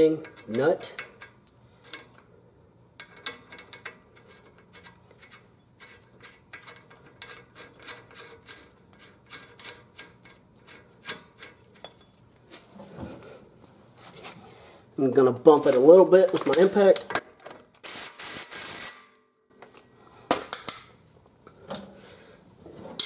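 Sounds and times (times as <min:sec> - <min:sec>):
metallic clicks and scrapes: 0:00.2 - 0:02.2, 0:03.0 - 0:12.2.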